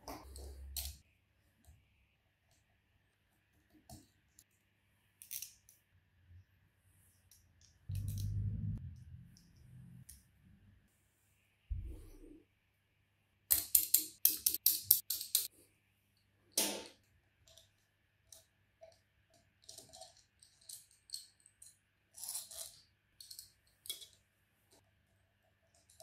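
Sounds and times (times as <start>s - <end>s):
metallic clicks and clinks: 7.9s - 8.4s, 13.5s - 15.5s.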